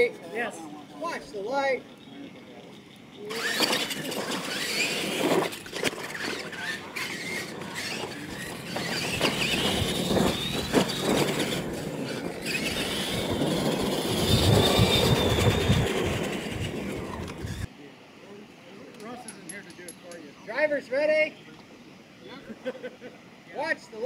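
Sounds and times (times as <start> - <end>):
motor and gear whine: 1.5 - 17.7.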